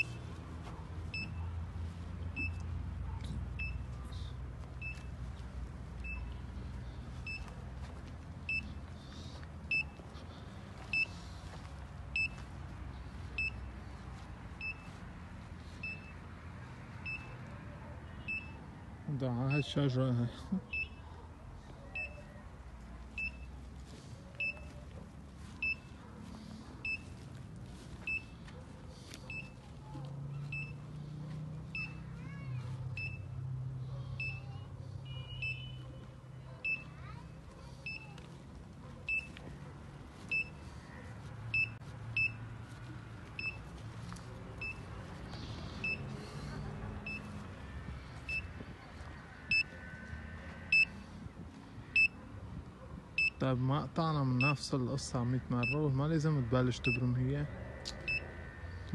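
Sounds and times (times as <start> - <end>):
short high-pitched beeps: 2.4 - 2.6, 8.5 - 8.7, 10.9 - 11.2, 12.2 - 12.4, 14.6 - 14.9, 15.8 - 16.2, 18.2 - 18.6, 23.2 - 23.5, 24.4 - 24.7, 25.6 - 25.9, 26.8 - 27.1, 28.1 - 28.3, 33.0 - 33.2, 34.2 - 34.4, 35.0 - 35.8, 41.5 - 42.4, 43.4 - 43.6, 50.7 - 50.9, 53.2 - 53.4.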